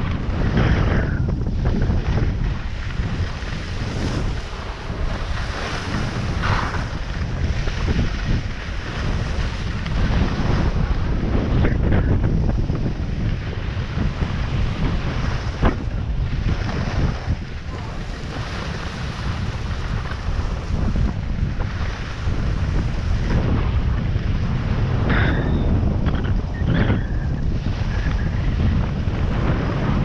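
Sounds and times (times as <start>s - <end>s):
wind buffeting microphone: 0.0s - 30.0s
skis scraping on packed snow: 2.0s - 11.0s.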